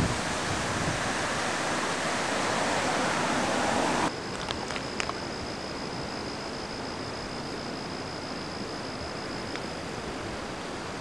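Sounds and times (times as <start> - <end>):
storm rushing noise: 0.0 - 4.1
thin high whine: 0.0 - 11.0.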